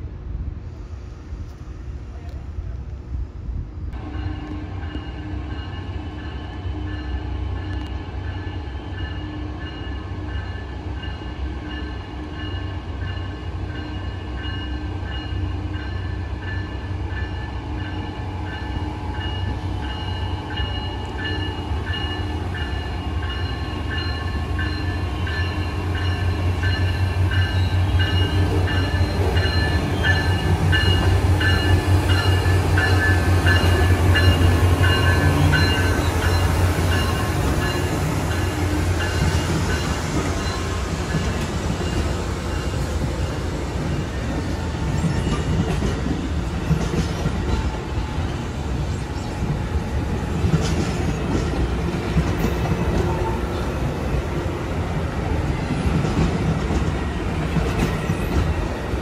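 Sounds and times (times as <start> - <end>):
train rumbling along rails: 0.0 - 59.0
high ringing tones: 4.0 - 45.5.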